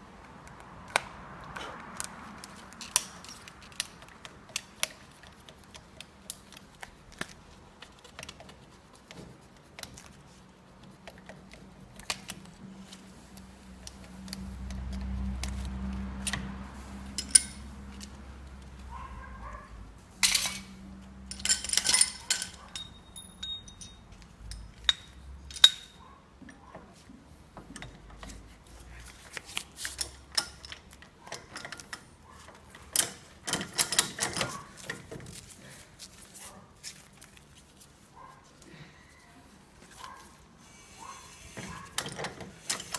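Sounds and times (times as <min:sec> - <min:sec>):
chisel clinking and scraping metal: 0:17.1 - 0:18.1, 0:20.2 - 0:26.0, 0:29.8 - 0:32.1.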